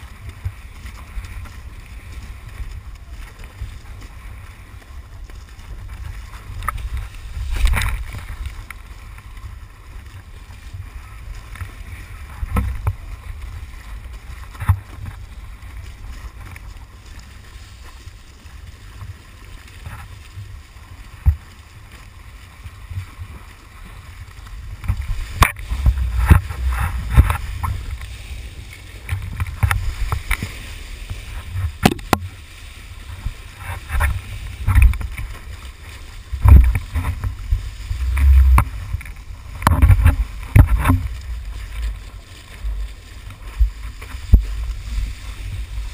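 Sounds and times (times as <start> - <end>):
water rushing under board: 0.0 - 45.9
water slaps and spray splashes: 0.0 - 45.9
wind buffeting microphone: 22.6 - 45.9.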